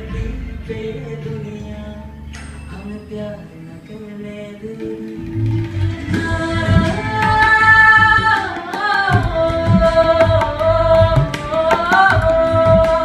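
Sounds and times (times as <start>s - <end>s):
sliding held melody: 0.0s - 13.0s
bending bass drum strokes: 5.2s - 13.0s
tabla treble drum strokes: 5.2s - 13.0s.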